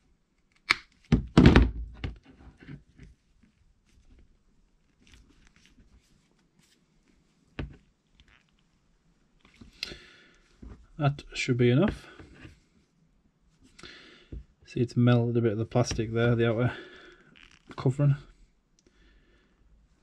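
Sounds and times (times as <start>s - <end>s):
loud thunk: 1.2s - 1.9s
small clicks and crackles: 8.0s - 8.8s.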